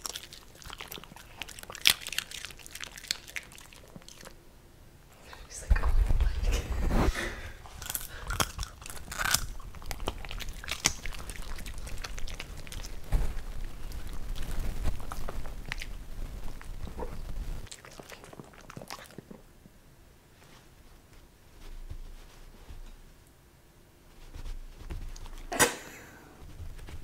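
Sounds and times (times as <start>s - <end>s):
dogs crunching popcorn: 0.0s - 4.4s, 5.2s - 19.5s.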